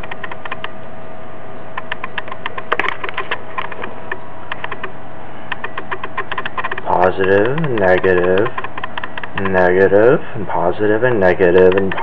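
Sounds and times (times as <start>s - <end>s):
sharp switching clicks: 0.0s - 0.8s, 1.8s - 9.7s, 11.6s - 12.0s
motor running hum: 0.0s - 0.9s, 1.6s - 12.0s.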